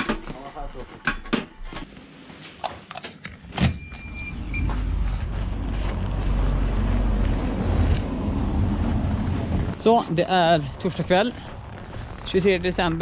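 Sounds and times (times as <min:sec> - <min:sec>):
short electronic beep: 0:03.8 - 0:04.7
street traffic rumble: 0:04.0 - 0:13.0.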